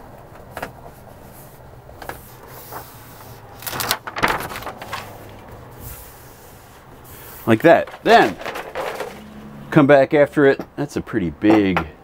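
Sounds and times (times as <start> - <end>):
paper rustling and crinkling: 1.0 - 9.4.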